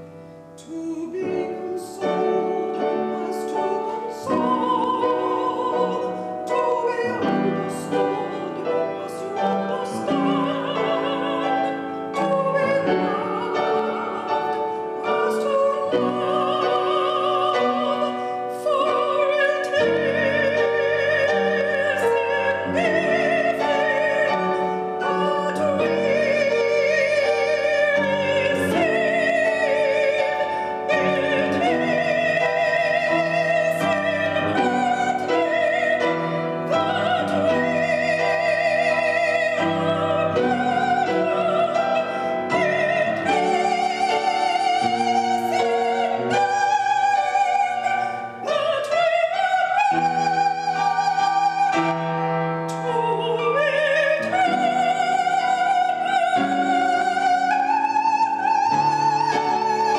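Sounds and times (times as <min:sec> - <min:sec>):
piano accompaniment: 0:00.0 - 0:59.9
woman singing operatically: 0:00.6 - 0:59.9.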